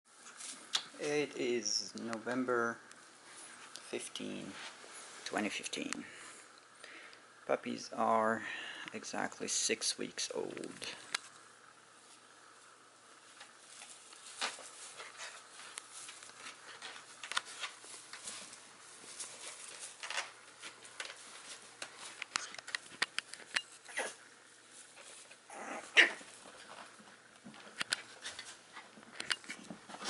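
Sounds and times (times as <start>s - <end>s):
puppies scuffling: 12.0s - 30.0s.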